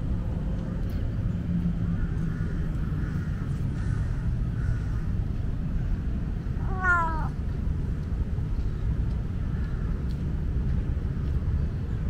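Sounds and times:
low background rumble: 0.0s - 12.0s
cat meowing: 6.6s - 7.4s.

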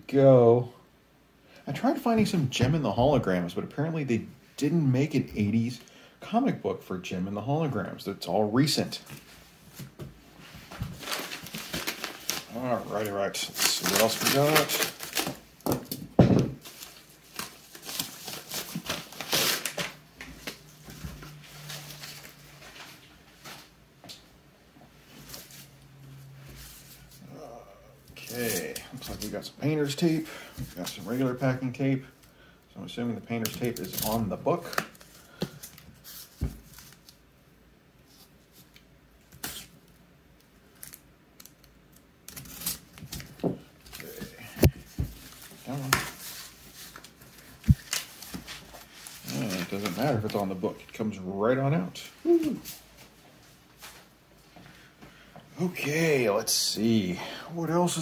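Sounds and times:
cardboard mailer rustling: 10.6s - 16.0s, 42.3s - 50.7s.

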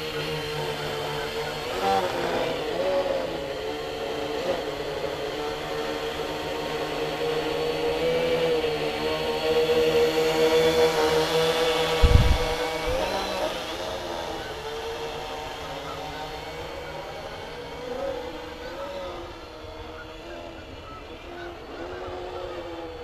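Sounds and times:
quadcopter motors humming: 0.0s - 23.0s.

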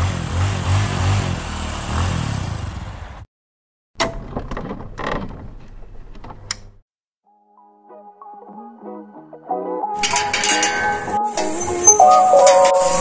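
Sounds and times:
motorcycle engine revving: 0.0s - 3.3s.

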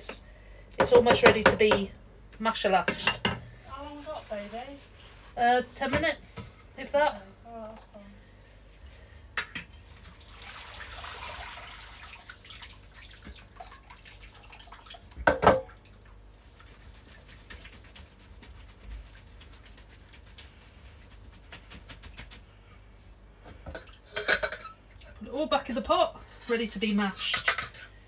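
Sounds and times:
hot water pouring into colander: 9.9s - 15.2s
water dripping: 10.0s - 18.1s.

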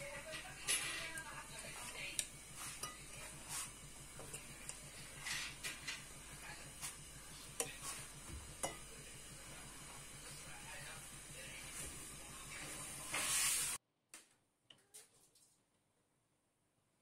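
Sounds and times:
pasta rustling in metal pot: 12.8s - 13.8s.

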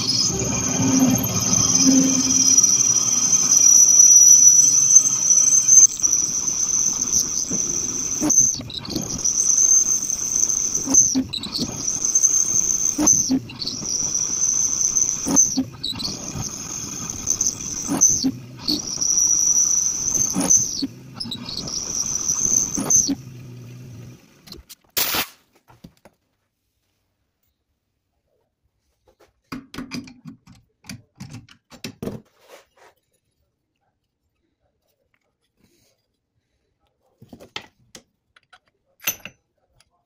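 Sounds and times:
cutting tool squealing: 0.0s - 24.6s
lathe running: 0.0s - 24.6s.

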